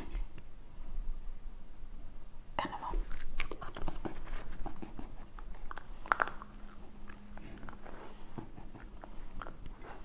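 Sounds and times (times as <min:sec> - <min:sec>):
faint low hum: 0:00.0 - 0:10.0
person chewing crunchy food: 0:03.1 - 0:10.0.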